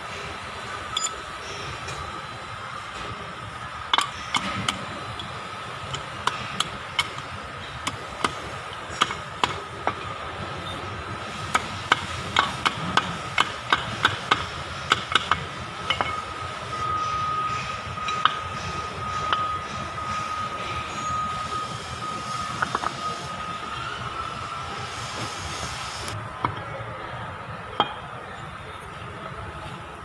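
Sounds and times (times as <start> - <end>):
metal parts clinking and knocking: 0.9 - 1.2.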